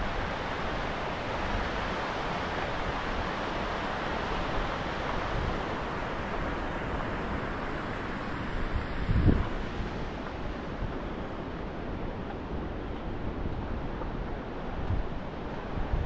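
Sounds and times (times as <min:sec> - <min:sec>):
wind buffeting microphone: 0:08.6 - 0:16.0.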